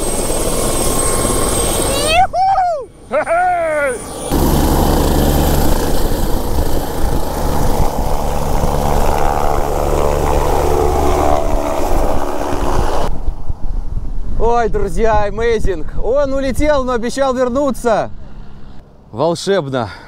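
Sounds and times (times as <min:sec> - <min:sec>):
helicopter rotor and turbines: 0:00.0 - 0:14.4
high-pitched whine: 0:02.9 - 0:14.0.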